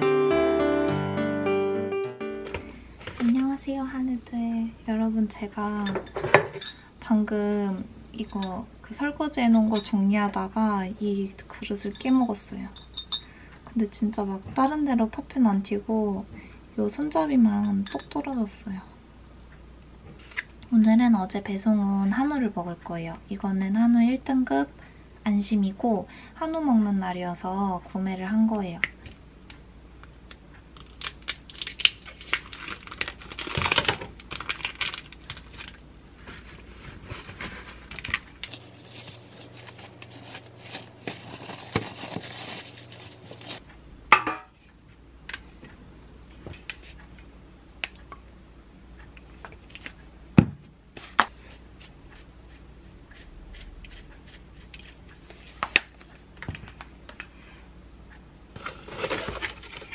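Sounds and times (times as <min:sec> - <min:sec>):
plastic packaging crinkling and tearing: 0:30.8 - 0:43.6, 0:58.6 - 0:59.9.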